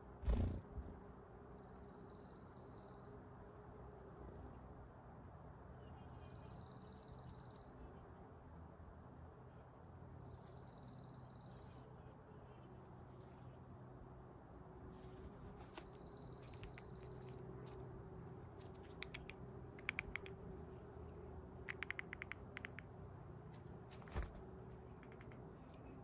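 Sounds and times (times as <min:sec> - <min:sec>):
animal cracking nut shell: 0:21.7 - 0:22.8.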